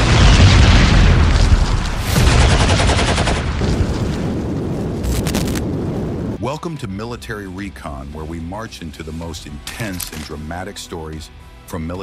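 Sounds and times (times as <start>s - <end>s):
deep explosion booms: 0.0s - 6.4s
rapid automatic gunfire: 2.2s - 3.5s.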